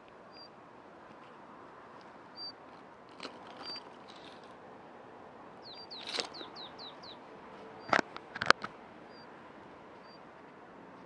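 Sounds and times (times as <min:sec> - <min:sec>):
steady outdoor hiss: 0:00.0 - 0:11.0
bird chirps: 0:00.3 - 0:00.5, 0:02.3 - 0:02.6, 0:05.6 - 0:07.2, 0:09.1 - 0:09.3, 0:10.0 - 0:10.2
bird whistle: 0:02.4 - 0:02.6, 0:05.6 - 0:07.2.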